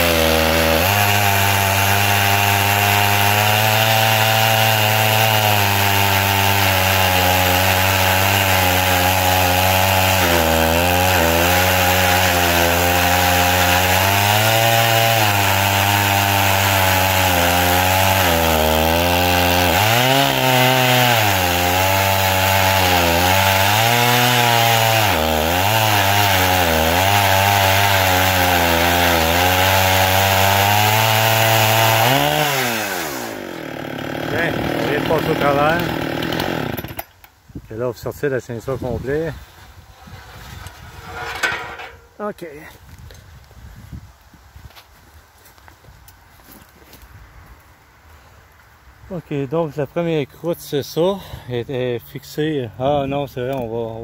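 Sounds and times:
chainsaw ripping through log: 0.0s - 37.3s, 38.7s - 42.3s.

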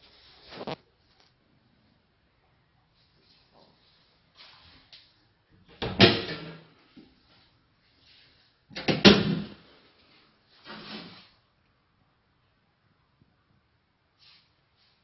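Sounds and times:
soft noise: 0.0s - 5.5s.

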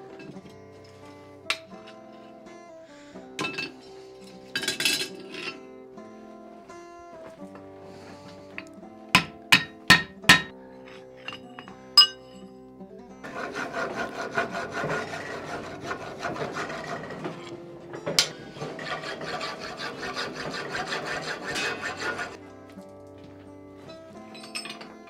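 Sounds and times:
background music: 0.0s - 25.0s
sharp metal clank: 9.2s - 10.5s, 11.2s - 12.4s
file rasping on hot iron: 13.2s - 22.4s.

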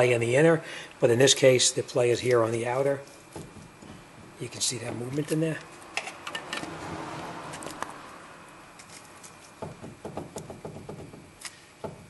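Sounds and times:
steering joint clicking and knocking: 9.6s - 12.0s.

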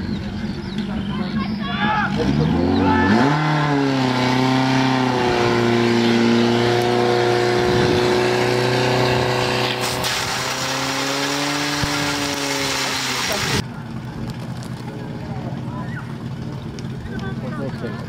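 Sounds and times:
pump engine revving: 2.1s - 13.6s.

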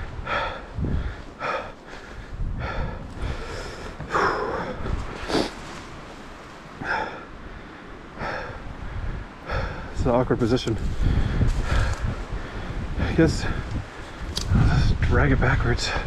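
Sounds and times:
man breathing hard and grunting: 0.0s - 5.6s, 6.8s - 10.0s.

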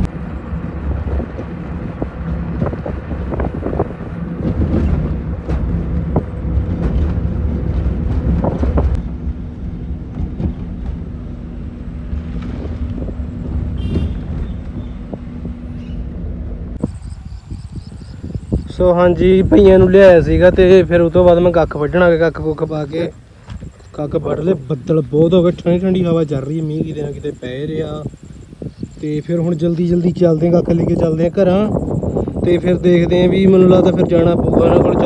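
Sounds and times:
car engine and tyre rumble: 0.0s - 35.0s
low engine hum: 0.0s - 35.0s
wind buffeting microphone: 0.0s - 35.0s
knocks and rattles: 1.0s - 9.0s, 10.0s - 11.2s.

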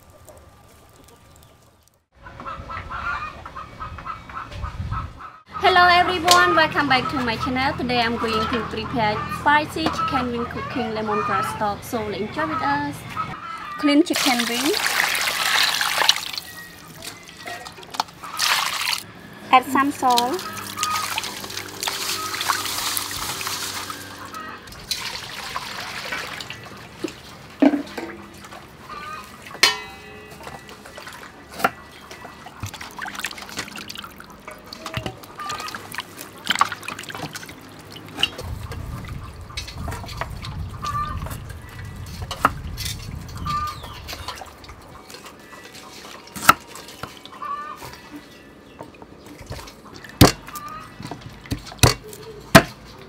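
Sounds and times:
water sloshing and splashing in bowl: 14.1s - 19.1s, 20.0s - 48.1s, 48.9s - 52.2s
clinks against metal bowl: 29.6s - 30.8s.

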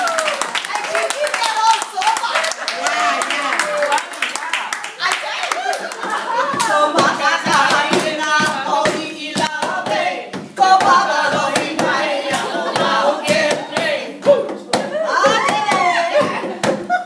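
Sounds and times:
people singing together: 6.0s - 17.0s.

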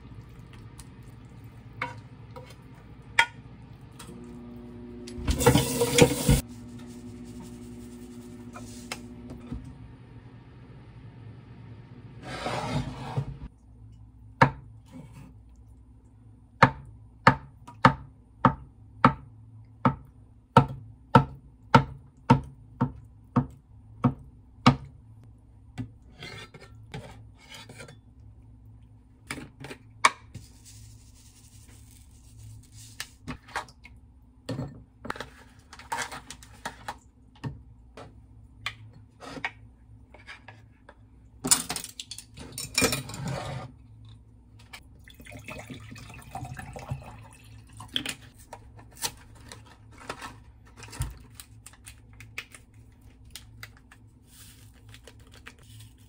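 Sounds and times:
knife scrape: 12.2s - 13.5s, 26.1s - 28.0s, 43.0s - 43.7s.

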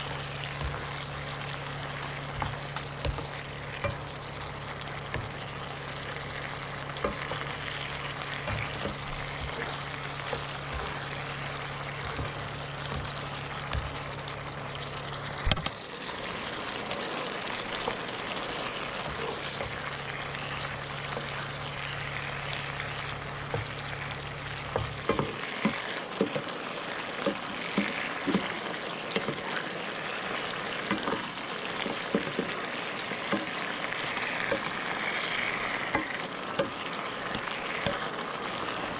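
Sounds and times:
fish sizzling in sauce: 0.0s - 38.9s
spatula knocking against pan: 24.7s - 26.5s.

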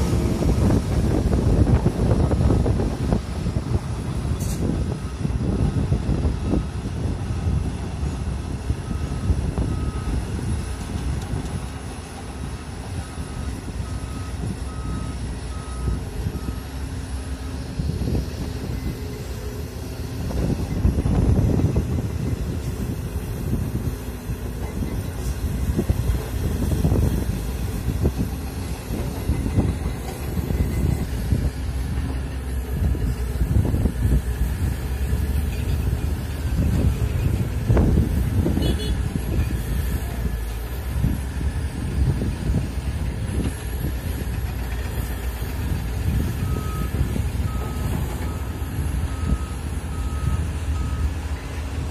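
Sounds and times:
excavator diesel engine running: 0.0s - 51.9s
back-up alarm beeps: 13.0s - 16.8s, 46.2s - 51.5s.

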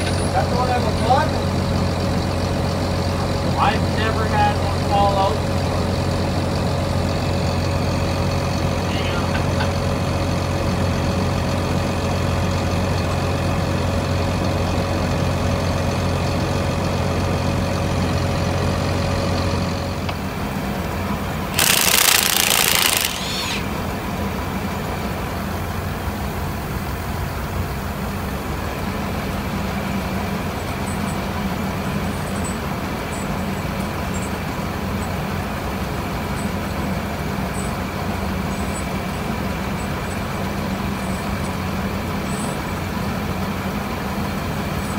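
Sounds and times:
heavy engine running: 0.0s - 44.9s
loud hiss: 21.5s - 23.8s.

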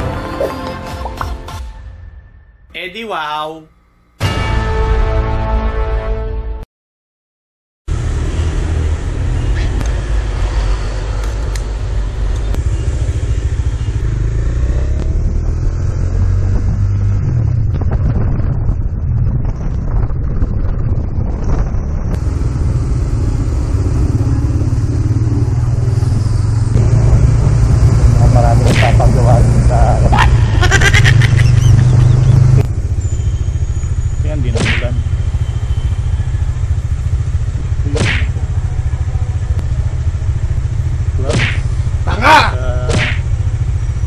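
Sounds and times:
motorcycle engine running: 11.3s - 44.0s
motorcycle engine idling: 12.4s - 14.6s, 31.4s - 44.0s
whip-like swishes: 34.6s - 34.9s, 37.9s - 38.4s, 41.2s - 41.7s, 42.9s - 43.2s
voice-like cry: 42.1s - 42.9s.

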